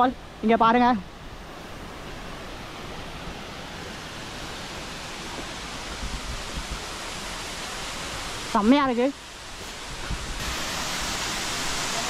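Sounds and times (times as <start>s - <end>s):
waterfall pouring: 9.2s - 12.0s.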